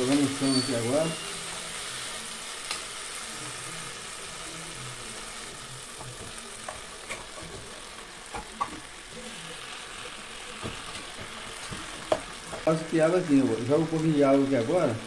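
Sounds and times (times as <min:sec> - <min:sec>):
food sizzling in a pot: 0:00.0 - 0:15.0.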